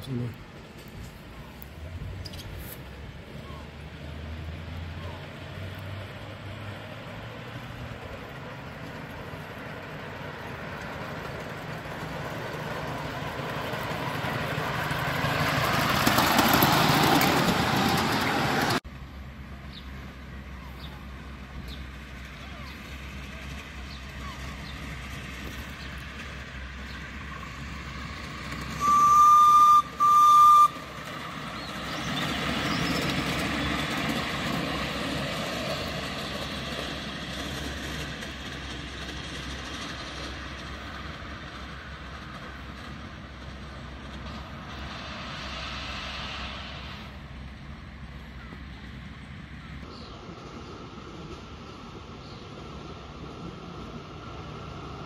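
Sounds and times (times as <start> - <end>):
locomotive running past: 0.0 - 55.0
steam locomotive whistle blasts: 28.8 - 30.8.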